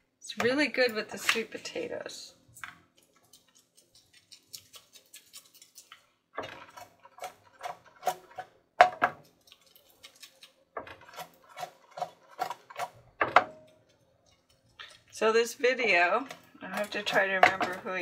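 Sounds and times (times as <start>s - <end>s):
fries rattling in shaken pot: 9.2s - 15.3s.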